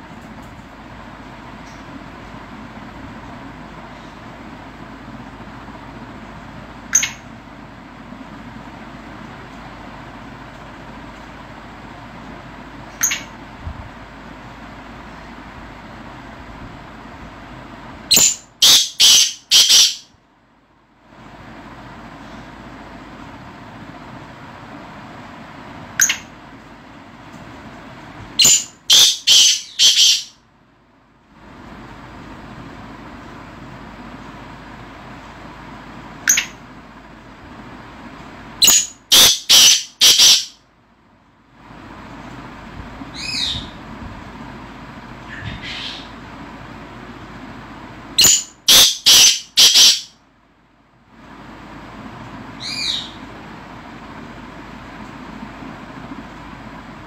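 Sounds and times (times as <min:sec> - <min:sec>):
francolin calling: 0:18.1 - 0:20.1, 0:28.4 - 0:30.4, 0:38.6 - 0:40.6, 0:45.3 - 0:46.2, 0:48.2 - 0:50.2, 0:52.6 - 0:53.2.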